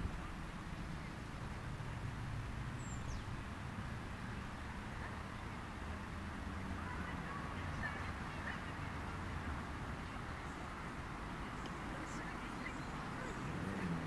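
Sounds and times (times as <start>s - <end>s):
bird chirp: 2.8s - 3.5s.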